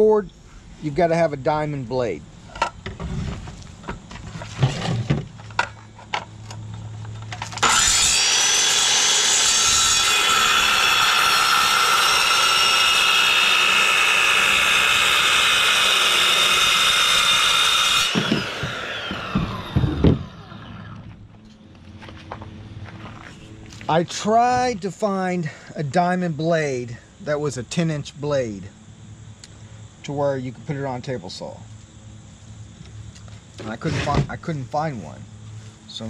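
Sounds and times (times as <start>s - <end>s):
circular saw cutting board: 7.4s - 21.2s
saw blade spinning down: 7.6s - 21.0s.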